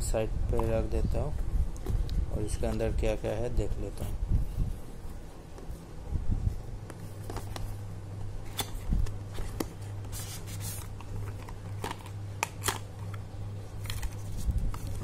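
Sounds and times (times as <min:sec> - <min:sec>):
steady low hum: 0:00.0 - 0:15.0
cardboard packaging handled: 0:13.8 - 0:15.0.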